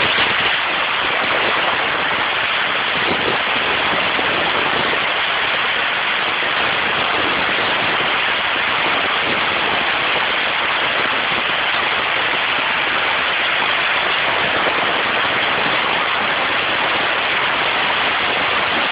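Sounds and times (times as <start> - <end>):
wind rushing over microphone: 0.0 - 18.9.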